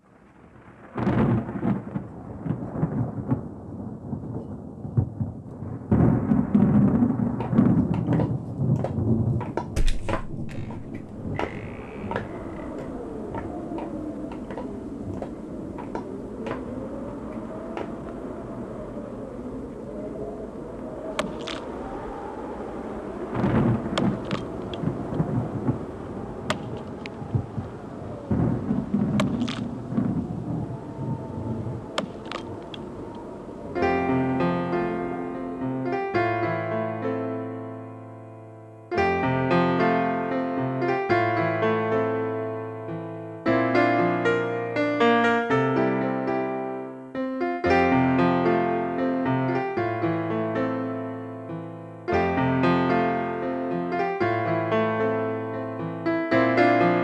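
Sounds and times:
sharp crackles: 0:00.0 - 0:18.4, 0:20.5 - 0:34.1
thunder rolling: 0:00.0 - 0:35.8
rain: 0:00.0 - 0:37.6
low rumbling: 0:00.1 - 0:35.4.

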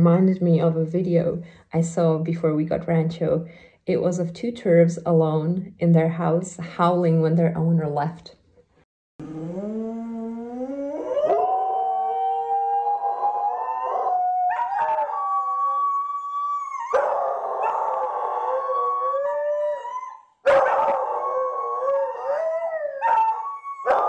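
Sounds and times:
dogs howling: 0:09.2 - 0:24.0.

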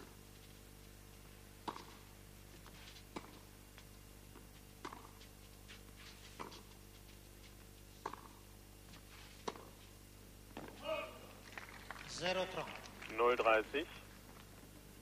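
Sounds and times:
steady low hum: 0:00.0 - 0:15.0
tennis racket hitting ball: 0:01.6 - 0:02.0, 0:04.8 - 0:05.2, 0:08.0 - 0:08.4, 0:09.4 - 0:09.8.

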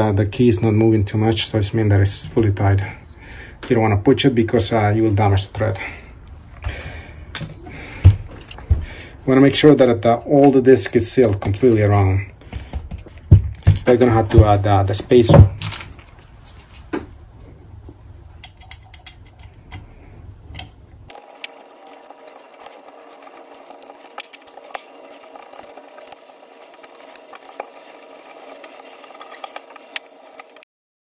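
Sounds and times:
hex key clicking and scraping: 0:20.5 - 0:30.6.

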